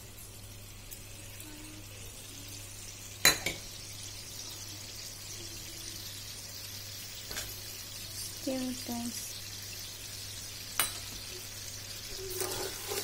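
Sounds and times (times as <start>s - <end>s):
sauce hissing in a pan: 0.0s - 13.0s
sharp clink against pan: 10.8s - 11.2s.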